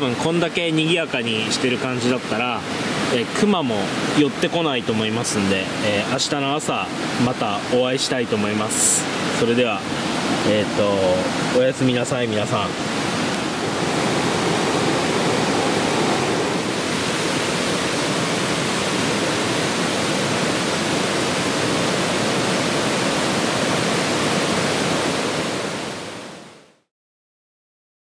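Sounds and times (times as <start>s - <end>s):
stream rushing: 0.0s - 26.8s.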